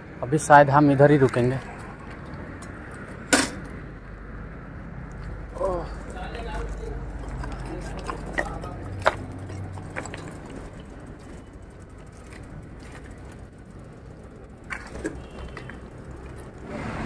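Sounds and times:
distant highway traffic: 0.0 - 17.0
bicycle clicking and knocking: 6.0 - 16.8.

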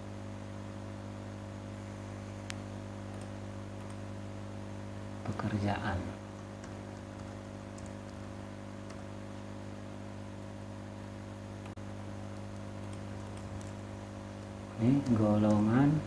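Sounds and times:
electrical mains hum: 0.0 - 16.0
computer mouse clicks: 2.4 - 4.0, 6.4 - 9.1, 11.6 - 13.8, 14.4 - 15.7.

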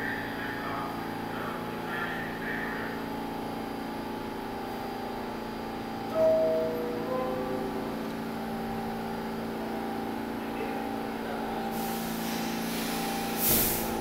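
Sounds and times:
train electric hum: 0.0 - 14.0
compressed air hissing: 11.7 - 14.0
loud blast of air: 11.7 - 14.0.

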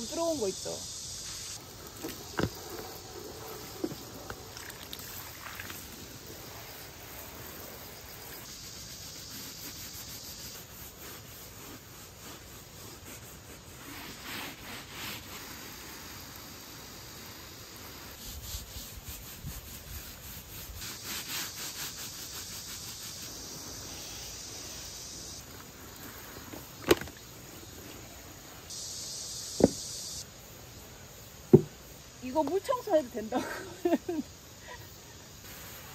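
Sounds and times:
sponge scrubbing wet plastic: 0.0 - 28.7
insects buzzing: 0.0 - 35.9
sharp knocks: 31.5 - 31.8.

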